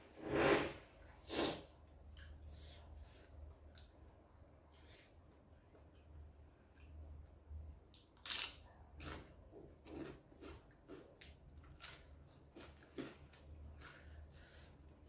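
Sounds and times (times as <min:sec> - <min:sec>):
crunchy food chewing: 0:08.0 - 0:14.6.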